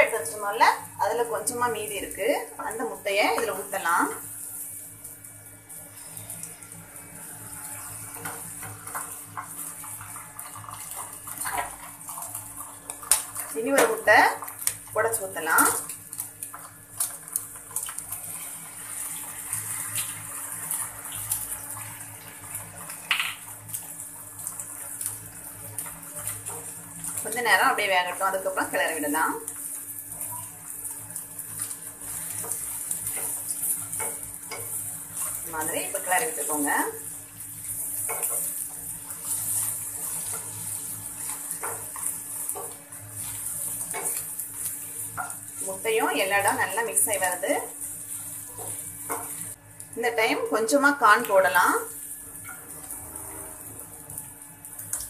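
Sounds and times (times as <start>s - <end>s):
egg sizzling in oil: 0.0s - 55.0s
small pops and crackles: 8.2s - 15.0s, 22.8s - 27.4s.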